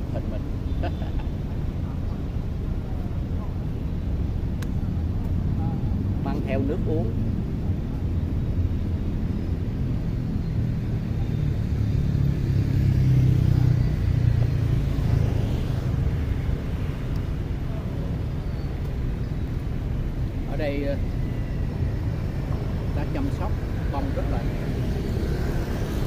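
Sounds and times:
city street traffic rumble: 0.0 - 26.0
vehicle passing: 10.7 - 18.2, 20.3 - 26.0.

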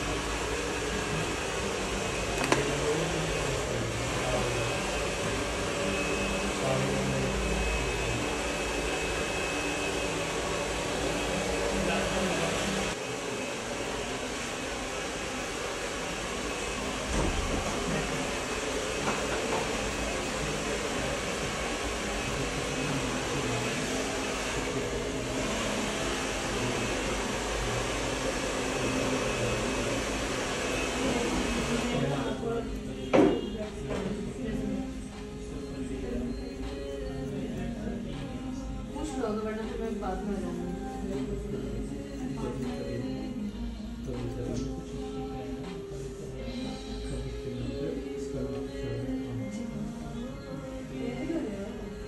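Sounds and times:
hair dryer blowing: 0.0 - 32.6.

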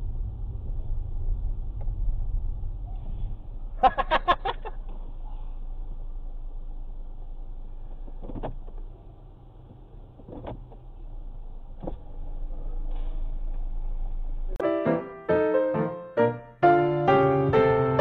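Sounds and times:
car engine idling: 0.0 - 15.6
piano music: 14.6 - 18.0.

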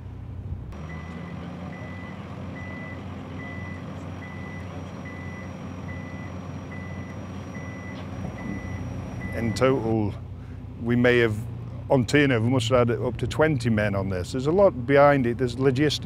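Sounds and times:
machinery engines running: 0.0 - 16.0
reversing alarm beeping: 0.8 - 10.0.

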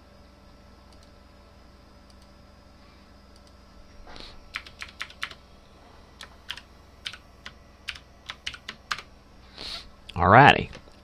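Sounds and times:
keyboard keystroke clicks: 4.5 - 5.4.

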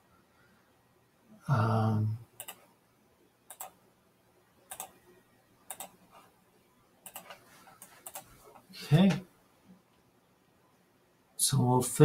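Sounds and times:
computer mouse clicking: 2.4 - 2.7, 3.5 - 3.8, 4.7 - 5.0, 5.7 - 6.2, 7.0 - 8.6.

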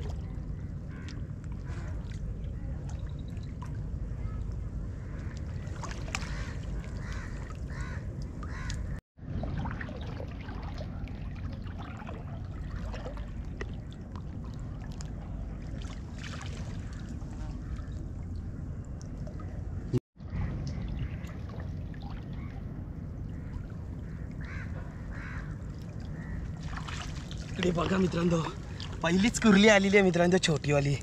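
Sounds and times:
small knocks and splashes: 0.0 - 22.7, 23.4 - 29.4
water sloshing around a boat: 0.0 - 31.0.

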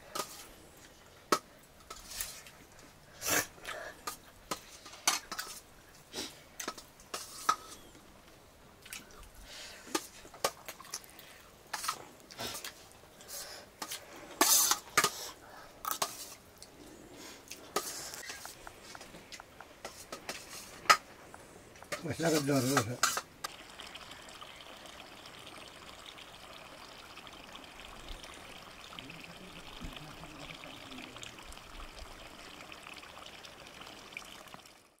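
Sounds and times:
trickle of running water: 0.0 - 7.9, 17.6 - 35.0
faint ticks and splashes: 4.0 - 14.0, 17.5 - 35.0.

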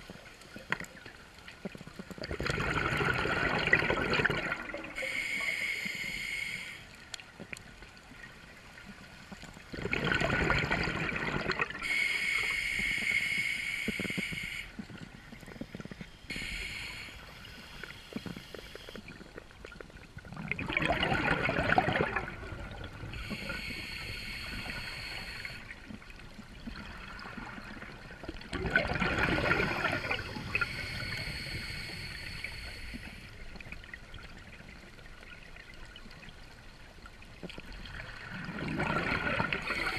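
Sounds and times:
exhaled bubbles: 1.6 - 5.5, 9.6 - 13.1, 17.4 - 36.2, 37.4 - 39.9
regulator hissing inhalation: 5.0 - 6.9, 11.8 - 14.8, 16.2 - 19.0, 23.1 - 25.7, 29.5 - 33.4, 39.6 - 39.9.

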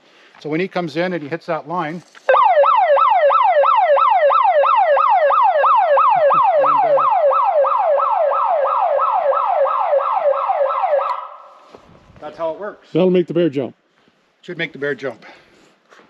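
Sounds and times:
electronic siren wailing: 2.3 - 11.6.

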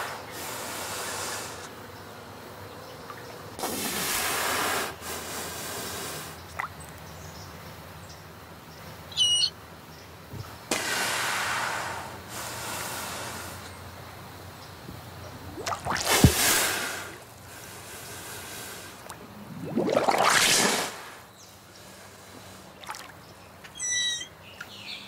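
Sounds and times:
manatee squeak: 9.1 - 9.5, 23.6 - 24.4
rushing water noise: 15.1 - 21.3
faint rising chirp: 19.1 - 20.6.

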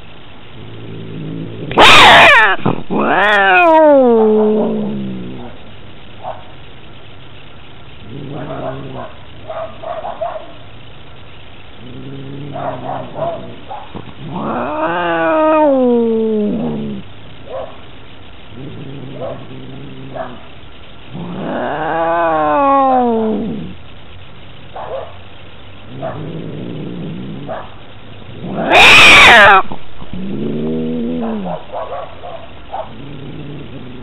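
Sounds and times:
cat growling: 0.5 - 5.7, 8.0 - 9.8, 11.7 - 17.1, 18.5 - 23.8, 25.8 - 34.0
cat yowling: 1.7 - 5.6, 12.4 - 17.0, 21.2 - 23.7, 28.4 - 33.0.

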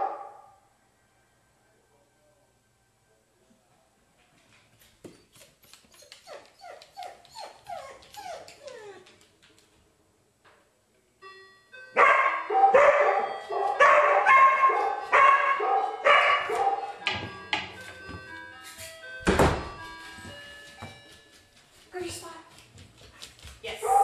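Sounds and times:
dog barking: 0.0 - 0.6, 12.0 - 17.0
dog yelping: 5.9 - 9.1
doorbell ringing: 11.2 - 21.8.

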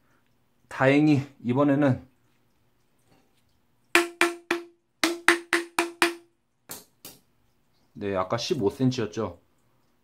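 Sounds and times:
pipe ringing: 3.8 - 6.4
hammer knocking plastic pipe: 4.0 - 7.2.

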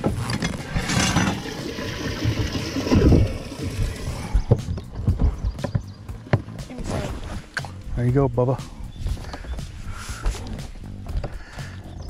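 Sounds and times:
water sloshing and gurgling: 0.0 - 7.9.

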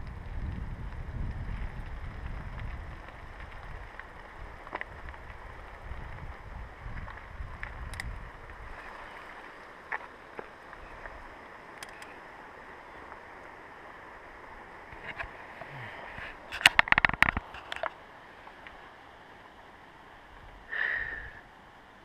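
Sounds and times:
wind rumble on microphone: 0.0 - 10.1
handling clicks and knocks: 16.6 - 17.9.

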